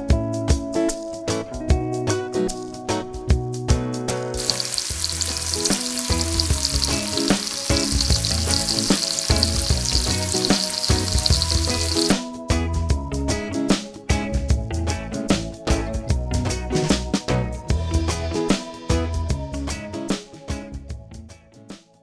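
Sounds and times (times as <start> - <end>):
vegetables sizzling in oil: 4.4 - 12.2.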